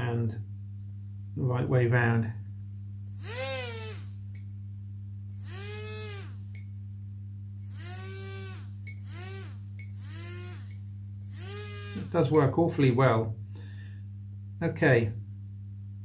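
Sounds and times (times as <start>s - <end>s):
steady low hum: 0.0s - 16.0s
electric motor propeller whine: 3.1s - 4.2s, 5.3s - 6.6s, 7.6s - 12.4s.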